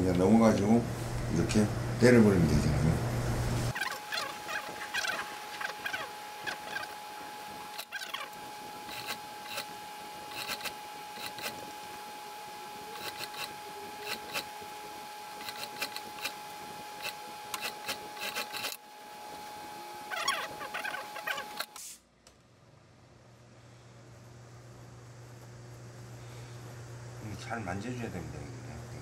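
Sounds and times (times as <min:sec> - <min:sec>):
sewing machine high hum: 0:03.7 - 0:21.8.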